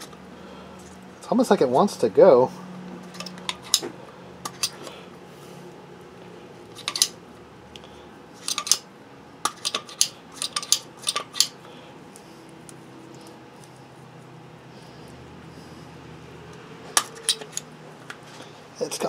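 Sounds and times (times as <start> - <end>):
metal and plastic parts clicking: 9.4 - 11.6.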